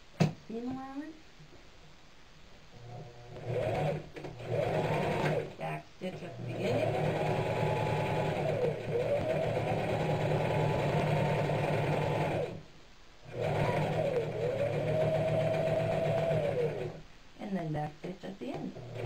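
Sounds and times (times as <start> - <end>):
sewing machine motor whine: 3.4 - 5.5, 6.5 - 12.6, 13.3 - 17.0, 18.8 - 19.0.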